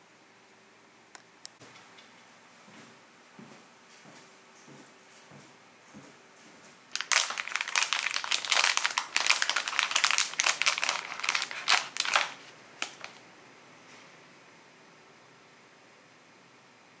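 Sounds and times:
packaging crinkling: 0:06.9 - 0:13.2.

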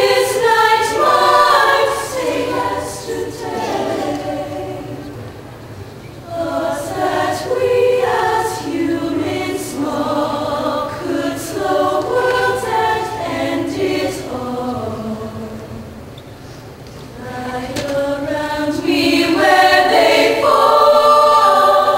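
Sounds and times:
women's choir singing in harmony: 0:00.0 - 0:16.2, 0:17.1 - 0:21.9.

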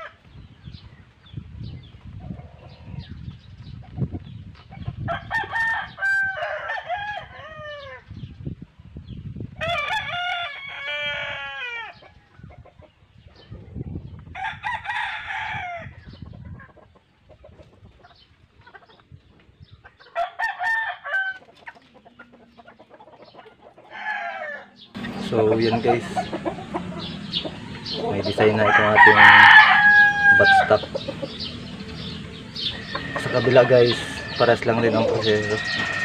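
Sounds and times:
rooster crowing: 0:05.1 - 0:08.0, 0:09.6 - 0:12.0, 0:14.4 - 0:15.9, 0:20.2 - 0:21.4, 0:23.9 - 0:36.0.

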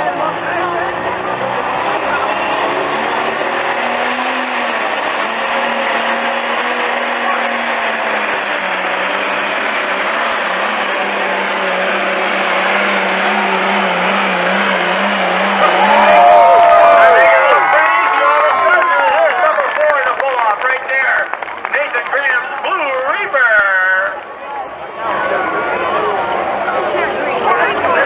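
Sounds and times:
tractor diesel engine droning: 0:00.0 - 0:28.0.

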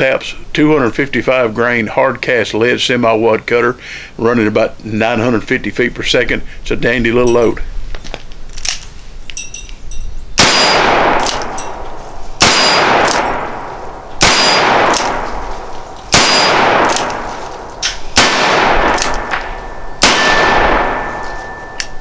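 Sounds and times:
revolver shots with ringing decay: 0:10.4 - 0:22.0.

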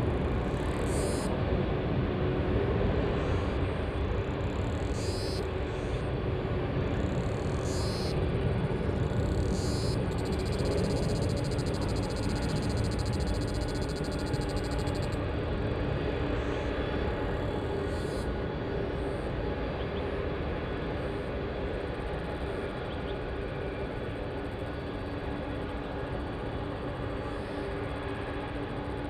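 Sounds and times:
jet engines at takeoff: 0:00.0 - 0:29.0
high fast-pulsing buzz: 0:09.4 - 0:15.2.

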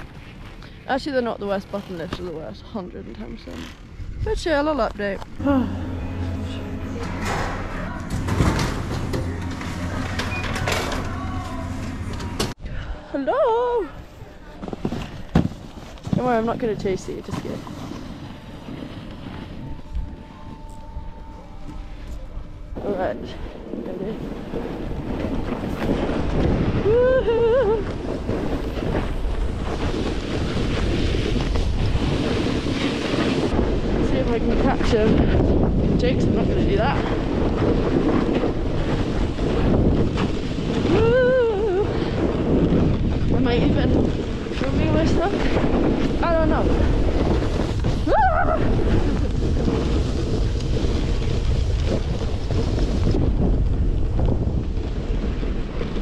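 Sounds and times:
wind buffeting microphone: 0:03.2 - 0:10.4, 0:16.1 - 0:56.0
person whooping: 0:26.8 - 0:27.8, 0:40.9 - 0:41.9, 0:48.0 - 0:48.7.

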